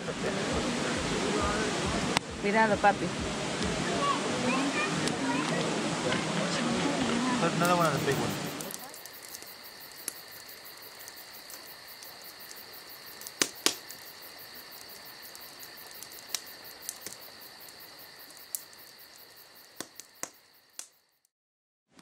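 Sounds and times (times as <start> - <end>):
campfire crackling and popping: 3.2 - 21.3
crickets trilling: 6.8 - 21.3.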